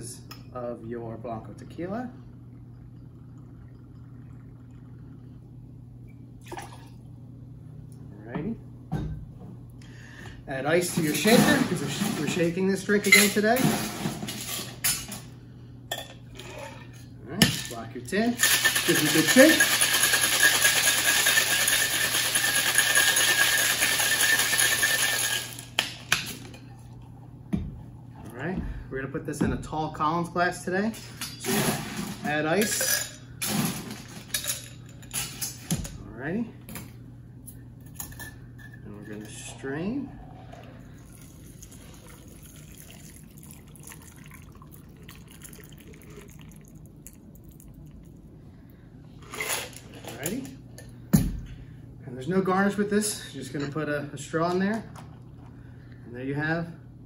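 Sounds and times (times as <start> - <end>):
liquid pouring trickle: 1.4 - 5.5, 40.3 - 48.3
ice rattling in cocktail shaker: 18.4 - 25.8.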